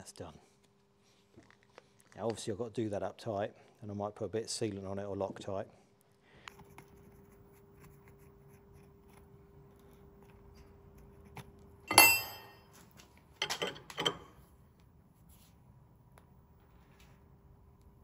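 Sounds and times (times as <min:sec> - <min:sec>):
faint steady hum: 0:00.0 - 0:18.0
spanner clinking against metal: 0:11.9 - 0:12.7, 0:13.4 - 0:14.3.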